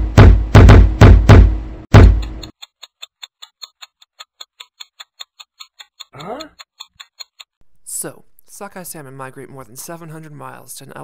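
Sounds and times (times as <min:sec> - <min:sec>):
heavy knocking thumps: 0:00.0 - 0:02.4
fast clock-like ticking: 0:02.0 - 0:07.6.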